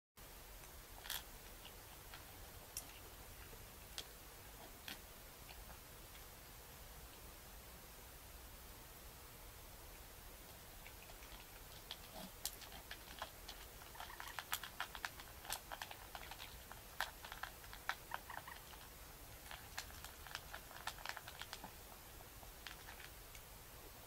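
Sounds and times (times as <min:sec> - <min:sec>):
animal crunching dry food: 0:01.0 - 0:06.3, 0:10.5 - 0:23.5
teeth clicking on metal bowl: 0:10.8 - 0:21.7.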